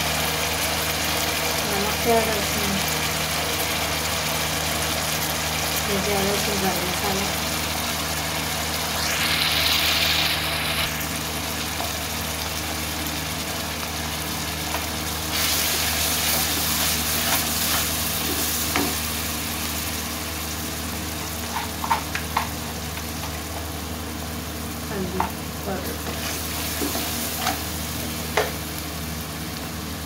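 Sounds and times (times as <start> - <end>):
onions sizzling in hot oil: 0.0 - 30.0
steady low hum: 5.8 - 21.7.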